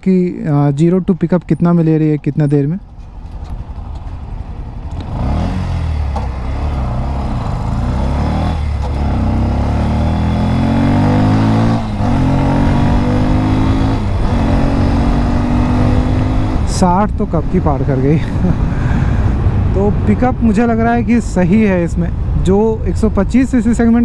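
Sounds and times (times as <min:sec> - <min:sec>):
motorcycle engine accelerating: 0:02.8 - 0:19.9.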